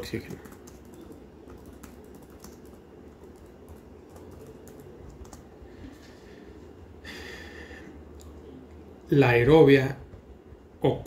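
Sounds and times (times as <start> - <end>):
computer keyboard typing: 0.0 - 5.5.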